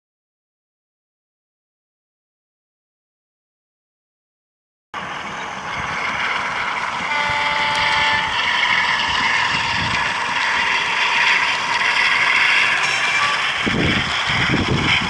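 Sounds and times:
model diesel locomotive engine: 0:05.0 - 0:15.0
two-tone train horn: 0:07.0 - 0:09.8, 0:12.9 - 0:13.7.

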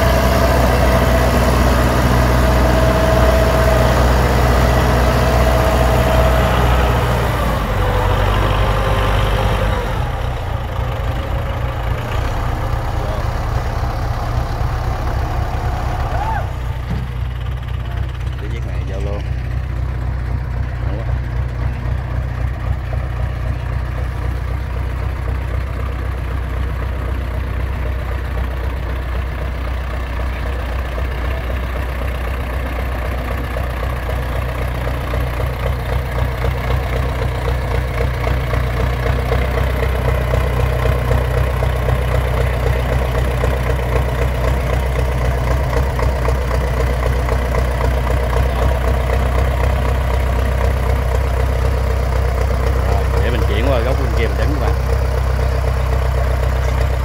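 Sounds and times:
diesel tractor engine rumbling: 0:00.0 - 0:57.0.

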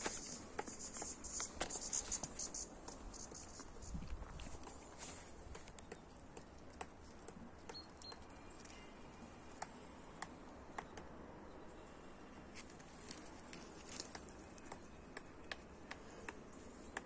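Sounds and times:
rustling of bramble leaves: 0:00.0 - 0:07.7, 0:12.3 - 0:15.1.

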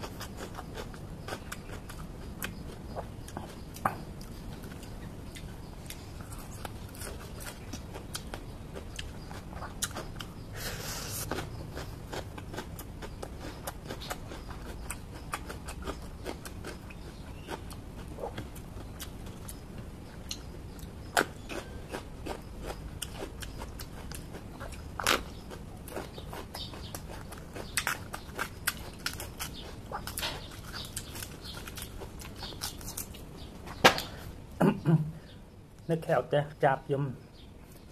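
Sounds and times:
chewing crunchy vegetables: 0:00.0 - 0:34.4.

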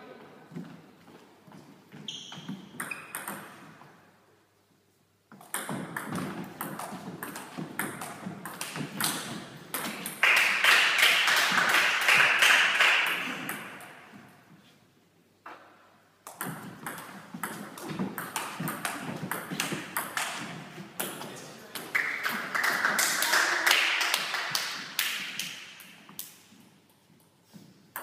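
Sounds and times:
steady hiss-like noise: 0:00.0 - 0:22.9.

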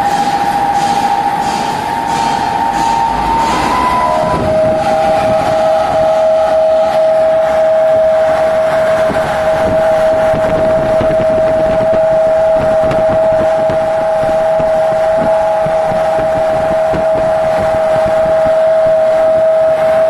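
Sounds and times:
centrifuge high whine: 0:00.0 - 0:20.0
rumbling knocking mechanical noise: 0:08.5 - 0:18.6.

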